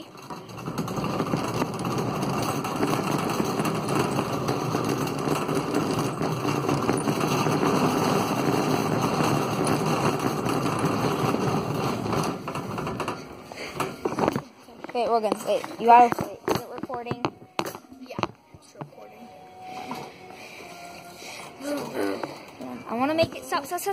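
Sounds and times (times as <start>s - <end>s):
cart wheels rolling: 0.0s - 17.3s.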